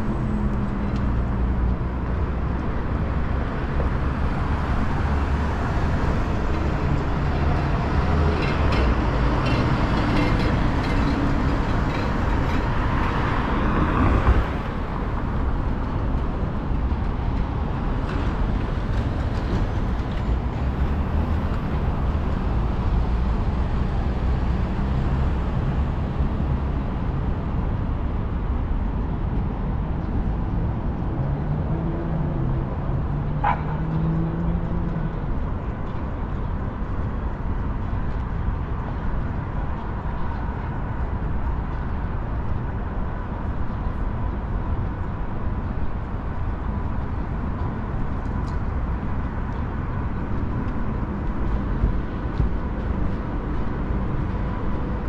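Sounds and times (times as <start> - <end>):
traffic rumble: 0.0 - 55.0.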